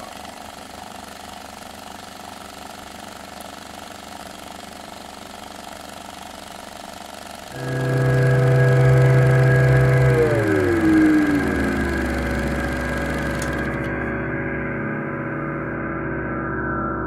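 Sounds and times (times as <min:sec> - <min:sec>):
film projector whirring: 0:00.0 - 0:14.1
music: 0:07.6 - 0:17.0.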